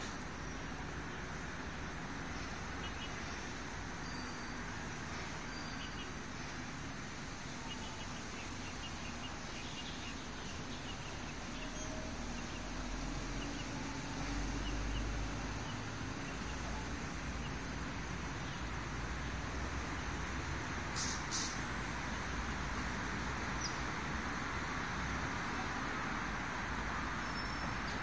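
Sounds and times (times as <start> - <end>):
outdoor background hiss: 0.0 - 28.0
faint bird chirps: 7.4 - 17.6.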